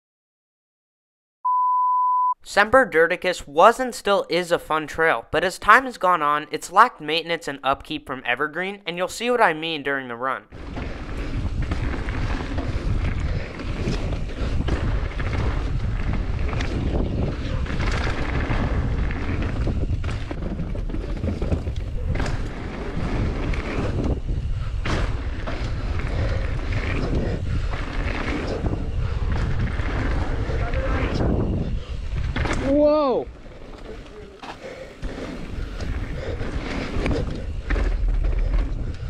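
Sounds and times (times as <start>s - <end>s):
tyres rolling over dirt: 10.5s - 39.0s
bike thumps and rattles: 10.6s - 39.0s
wind buffeting microphone: 10.6s - 39.0s.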